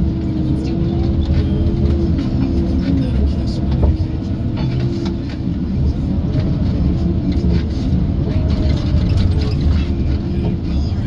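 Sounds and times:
diesel engine and hydraulics running: 0.0 - 11.0.

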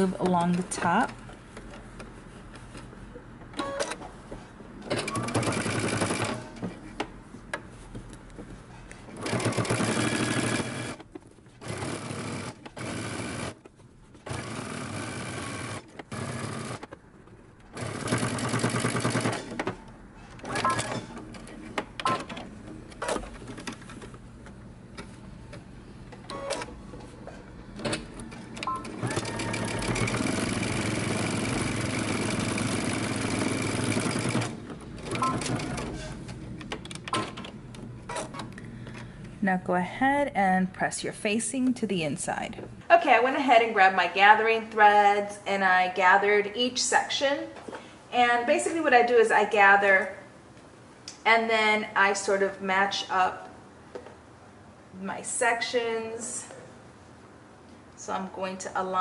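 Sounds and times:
sewing machine stitching: 4.9 - 6.6, 9.2 - 11.0, 20.4 - 21.2, 28.7 - 36.2.

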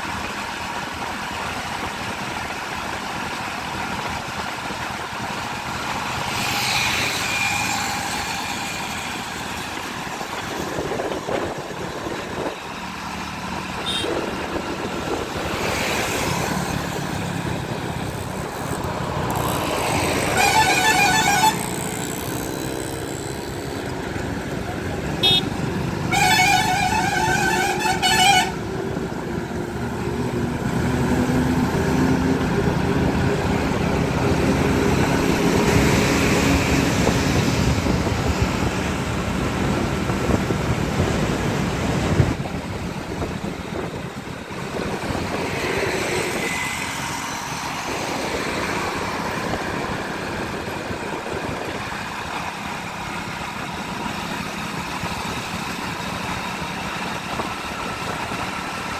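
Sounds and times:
motorbike engine cruising: 0.0 - 58.9
warbling vehicle horn: 13.8 - 14.2, 20.2 - 22.0, 25.2 - 28.6.

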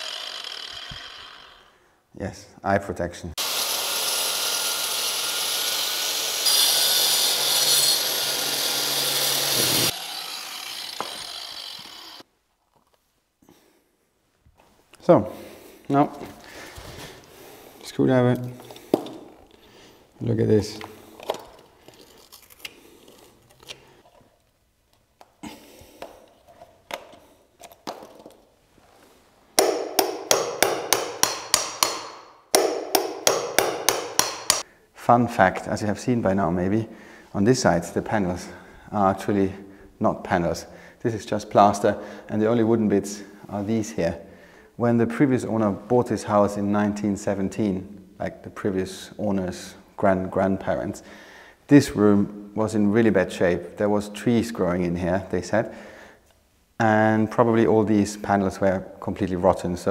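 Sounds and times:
power tool grinding wall: 0.0 - 1.8, 3.4 - 12.3
hammer striking screwdriver: 10.9 - 12.1, 29.6 - 34.6.

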